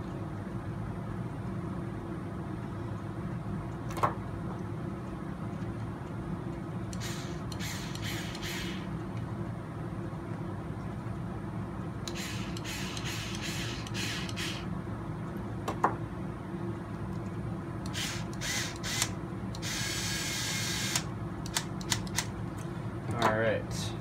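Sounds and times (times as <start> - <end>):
electric screwdriver whirring: 7.0 - 8.9, 12.1 - 14.6, 17.9 - 22.1.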